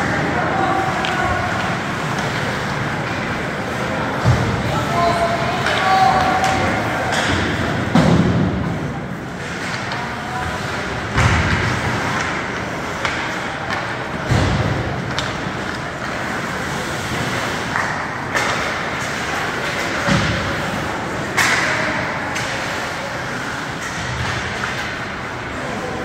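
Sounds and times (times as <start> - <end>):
crowd noise hum: 0.0 - 26.0
thuds against rink boards: 5.7 - 8.8, 11.1 - 12.4, 13.0 - 15.5.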